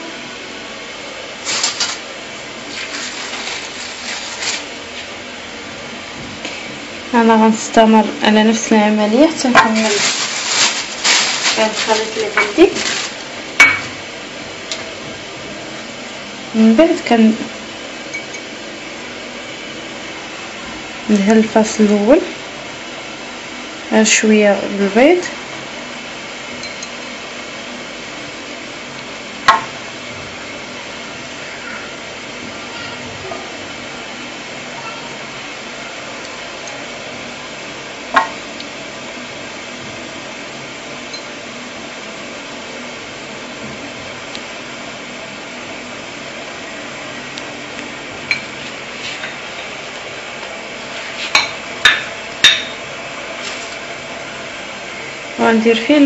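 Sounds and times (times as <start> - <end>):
kitchenware clinking: 13.6 - 14.0, 26.6 - 27.1, 51.3 - 52.8.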